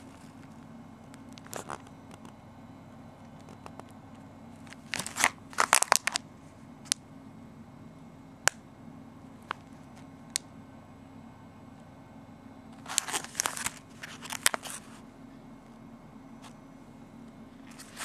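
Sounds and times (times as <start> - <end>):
plastic packaging crinkling: 1.3 - 2.3, 4.6 - 6.2, 12.8 - 15.0.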